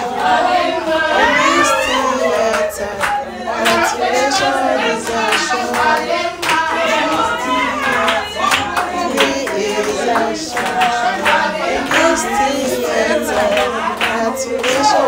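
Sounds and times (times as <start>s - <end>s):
group of people singing: 0.0s - 15.0s
hands clapping in time: 2.5s - 15.0s.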